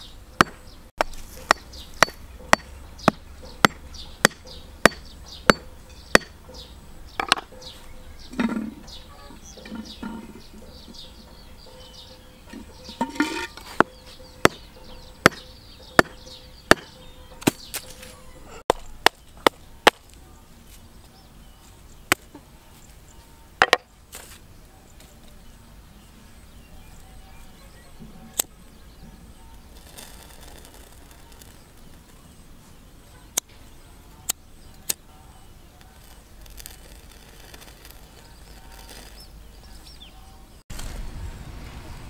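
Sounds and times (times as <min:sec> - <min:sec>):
knife chopping hard object: 0:16.0 - 0:17.7.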